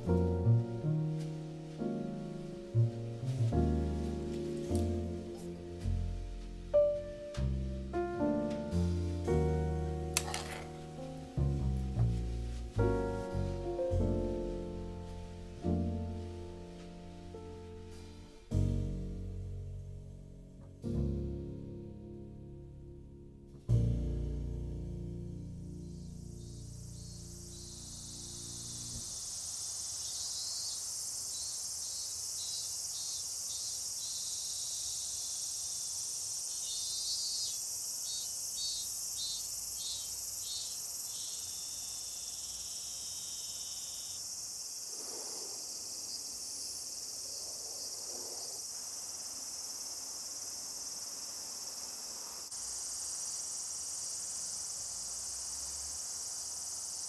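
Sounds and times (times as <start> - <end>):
insect trill: 10.2 - 11.3, 25.6 - 57.0
crickets chirring: 25.6 - 57.0
insect chirping in pulses: 25.6 - 57.0.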